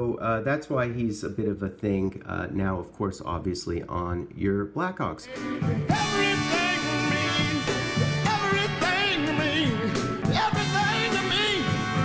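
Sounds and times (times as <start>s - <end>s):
man singing into a microphone: 5.2s - 12.0s
band playing: 5.3s - 12.0s.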